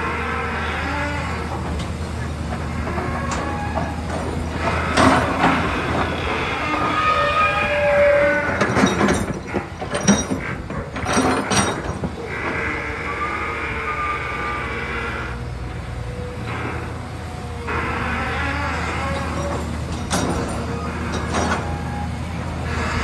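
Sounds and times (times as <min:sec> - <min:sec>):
excavator diesel engine under load: 0:00.0 - 0:23.0
hydraulic whine: 0:00.0 - 0:23.0
sharp metal knocks and clanks: 0:08.5 - 0:12.2, 0:19.4 - 0:21.8.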